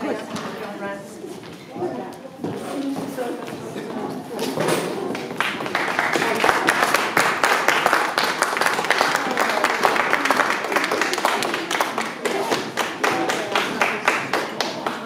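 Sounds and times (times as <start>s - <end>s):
audience clapping: 5.0s - 15.0s.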